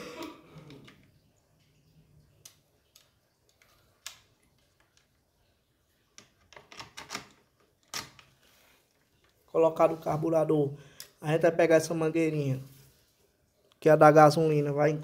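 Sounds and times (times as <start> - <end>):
plastic and metal parts clicking: 6.2 - 8.3.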